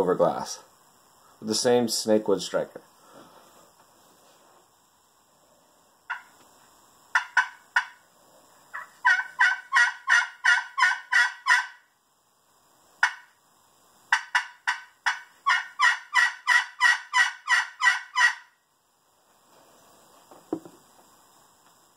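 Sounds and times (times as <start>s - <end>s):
turkey call yelping: 6.1s - 6.3s, 7.1s - 8.0s, 8.7s - 11.9s, 13.0s - 13.3s, 14.1s - 18.6s.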